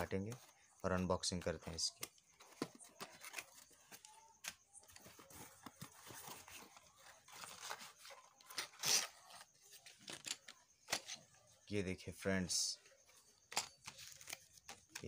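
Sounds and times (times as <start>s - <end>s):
packing tape tearing: 7.3s - 9.5s.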